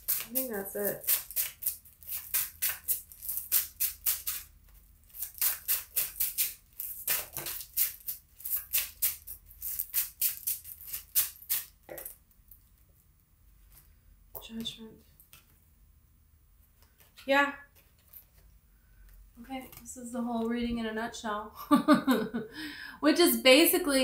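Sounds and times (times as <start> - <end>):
cards being shuffled: 0.0 - 11.7, 16.7 - 18.5.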